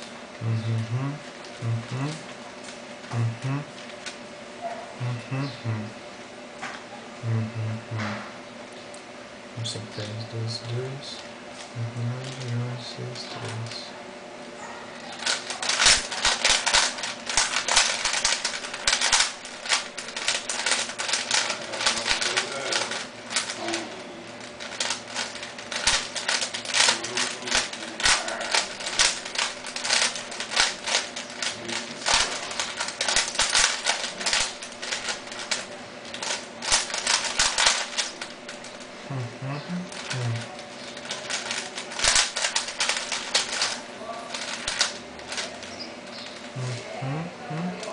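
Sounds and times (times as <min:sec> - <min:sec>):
puzzle cube plastic clicking: 0:15.2 - 0:23.7, 0:24.6 - 0:38.8, 0:39.9 - 0:45.6.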